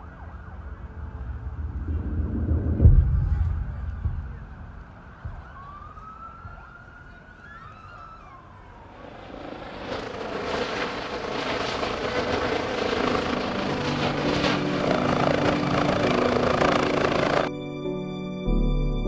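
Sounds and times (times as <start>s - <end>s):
helicopter rotor and turbine: 8.6s - 17.5s.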